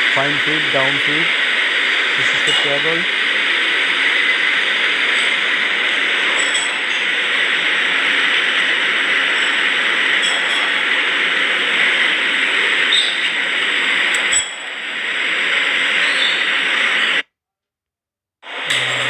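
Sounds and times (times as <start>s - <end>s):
drilling machine cutting metal: 0.0s - 17.2s, 18.5s - 19.0s.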